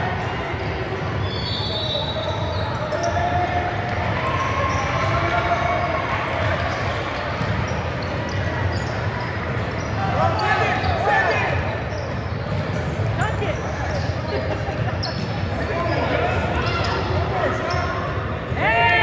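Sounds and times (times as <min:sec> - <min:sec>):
basketball bouncing on court: 0:06.4 - 0:15.7.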